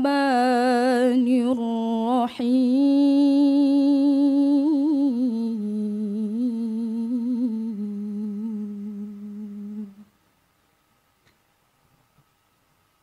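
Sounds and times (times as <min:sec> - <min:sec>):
woman chanting recitation: 0:00.0 - 0:10.1.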